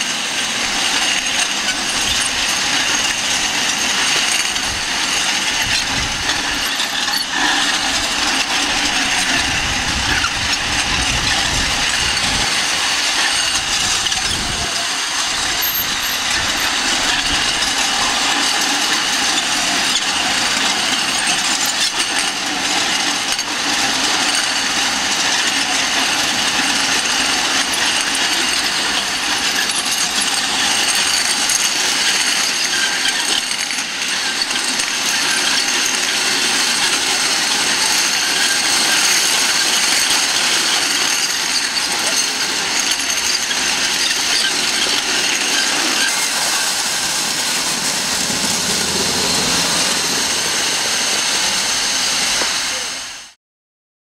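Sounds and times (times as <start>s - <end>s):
metal rollers clattering: 0.0s - 52.8s.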